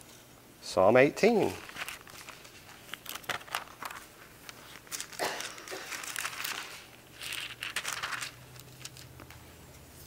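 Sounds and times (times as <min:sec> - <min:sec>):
book pages turning: 0:01.5 - 0:09.4.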